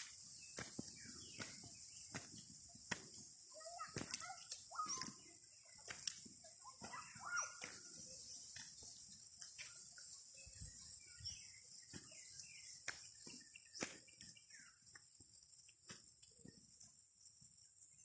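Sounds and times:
soft footsteps on dirt: 0.0 - 16.9
faint bird chirps: 0.0 - 18.0
high-pitched insect chorus: 0.0 - 18.0.

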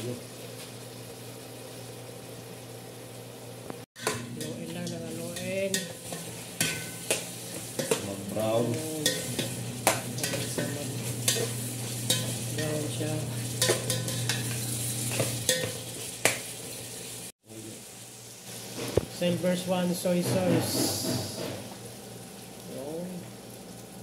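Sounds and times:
chicken sizzling in a pot: 0.0 - 24.0
metal spoon scraping a pot: 5.7 - 8.1, 9.0 - 12.7, 13.4 - 15.9.

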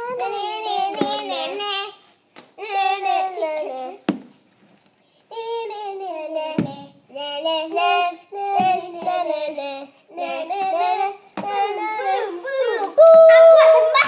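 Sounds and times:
child singing: 0.0 - 2.0, 2.6 - 4.1, 5.3 - 14.0.

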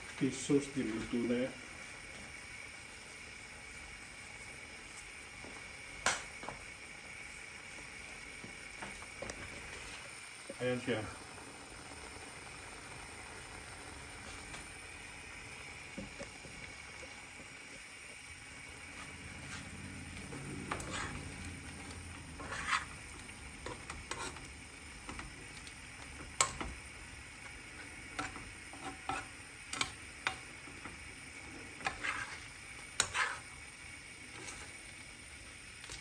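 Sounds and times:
faint sizzle: 0.0 - 36.0
metal spoon scraping a pan: 20.3 - 24.5, 28.1 - 30.5, 31.7 - 33.6, 34.3 - 34.8.

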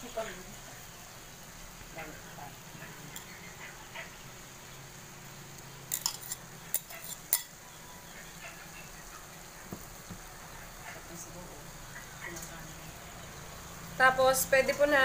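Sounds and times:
metal spoon clinking against bowl: 5.9 - 7.6.

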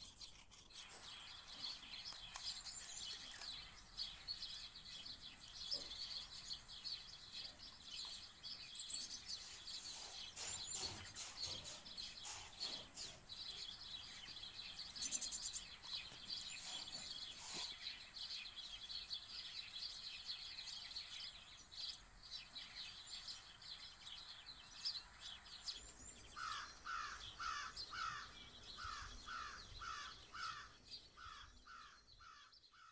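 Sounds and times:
small birds chirping: 0.0 - 32.9
crow cawing: 26.4 - 32.9.

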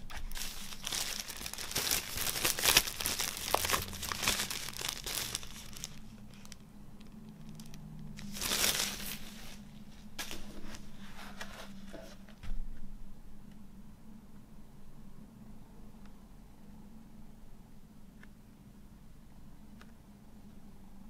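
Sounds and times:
plastic shrink wrap crinkling: 0.0 - 10.9.

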